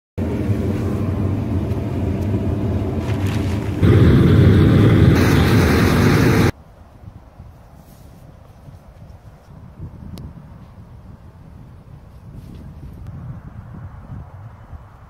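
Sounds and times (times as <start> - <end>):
gas burner roaring: 0.2 - 6.6.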